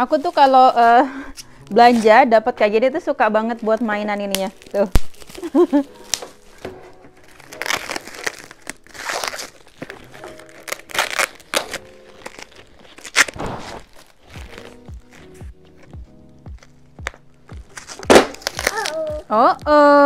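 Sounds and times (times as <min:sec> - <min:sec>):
plastic packaging crinkling: 0:00.0 - 0:01.1, 0:03.4 - 0:15.4, 0:16.6 - 0:19.2
background music: 0:00.0 - 0:20.0.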